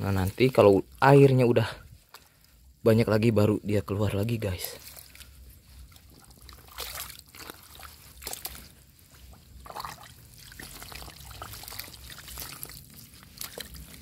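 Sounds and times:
trickling water: 0.0 - 14.0
water splashes and squelches: 0.0 - 14.0
hands digging through mud: 4.4 - 14.0.

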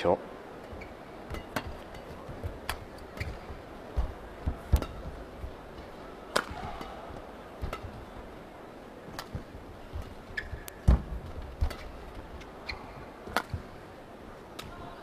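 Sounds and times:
rackets striking shuttlecock: 0.7 - 8.1, 9.1 - 12.5, 13.2 - 13.8
footwork thuds on court: 1.3 - 5.6, 9.2 - 11.9.

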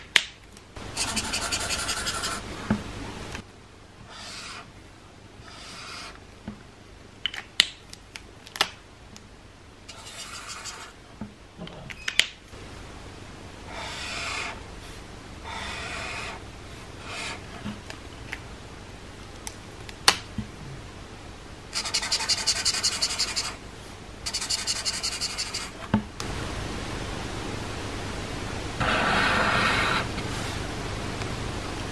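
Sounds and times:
marker tips scratching paper: 0.8 - 2.5, 4.0 - 4.7, 5.4 - 6.2, 9.9 - 11.0, 13.7 - 14.6, 15.5 - 16.4, 17.0 - 17.6, 21.7 - 23.6, 24.2 - 25.8, 28.8 - 30.1.

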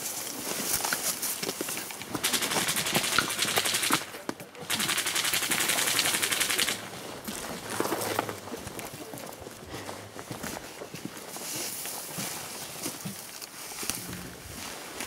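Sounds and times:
airsoft gun firing bursts: 2.0 - 6.9.

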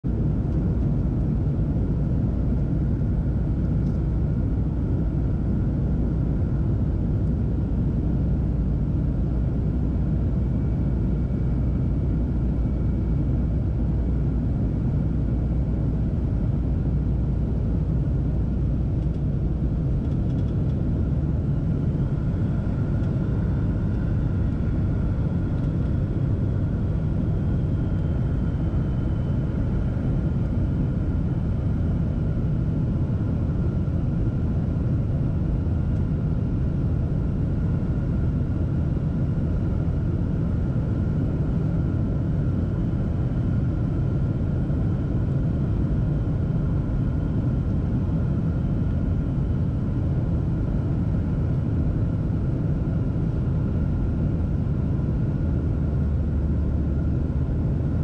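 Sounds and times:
airliner engine and airflow rumble: 0.0 - 58.0
faint steady whines: 0.1 - 58.0.

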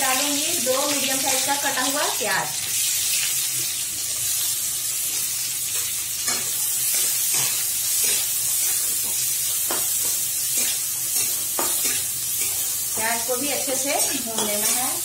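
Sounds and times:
onions sizzling in hot oil: 0.0 - 15.0
spatula scraping a pan: 5.1 - 13.0.

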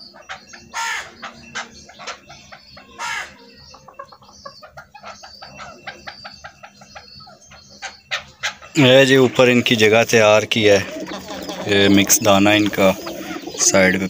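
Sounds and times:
harsh partridge call: 0.0 - 14.0
partridges clucking: 7.8 - 14.0.

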